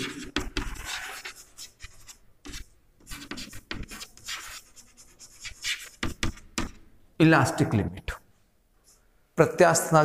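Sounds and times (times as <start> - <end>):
chalk scratching on chalkboard: 0.0 - 6.8.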